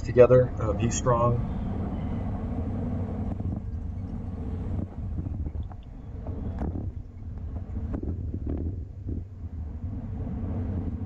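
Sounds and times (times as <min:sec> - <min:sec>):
road and tyre rumble: 0:00.0 - 0:11.0
wind rushing over microphone: 0:00.0 - 0:11.0.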